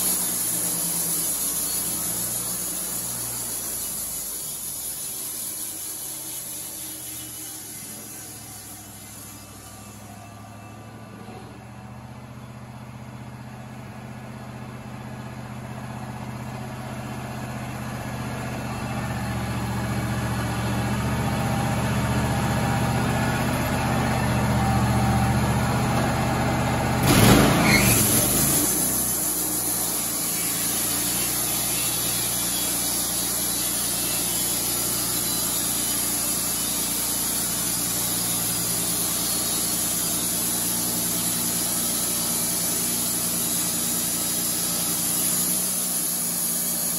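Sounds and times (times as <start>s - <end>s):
band blade cutting wood hiss: 0.0s - 10.2s, 27.0s - 46.9s
sawmill engine running: 0.0s - 46.9s
loud burst: 27.0s - 30.3s.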